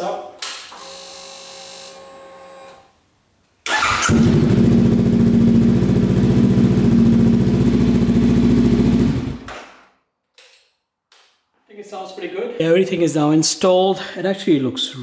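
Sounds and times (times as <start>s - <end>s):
motorcycle starter cranking: 3.7s - 4.7s
motorcycle engine idling: 4.1s - 9.5s.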